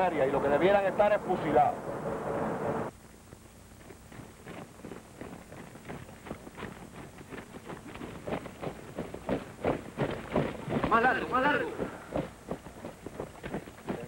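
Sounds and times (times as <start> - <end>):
men marching on dirt: 3.2 - 14.0.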